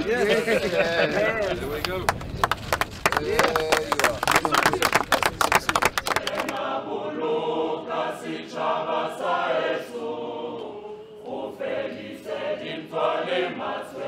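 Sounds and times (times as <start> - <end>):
choir singing: 6.1 - 14.0.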